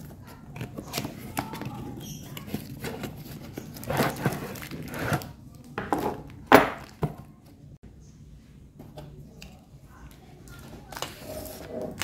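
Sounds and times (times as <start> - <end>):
cardboard and plastic rustling: 0.0 - 7.6.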